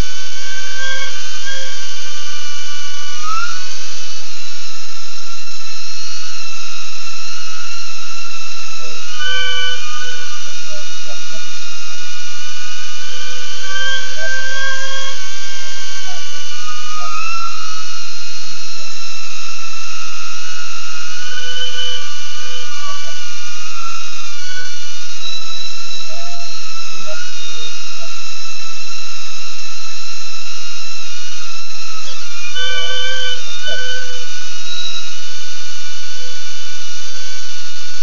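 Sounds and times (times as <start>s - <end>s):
quadcopter motors whining: 0.0s - 4.2s, 12.4s - 18.6s, 19.6s - 28.3s.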